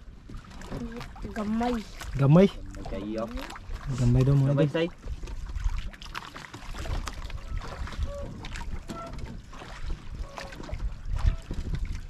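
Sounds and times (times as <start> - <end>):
water slapping boat hull: 0.0 - 12.0
wind buffeting microphone: 6.7 - 12.0.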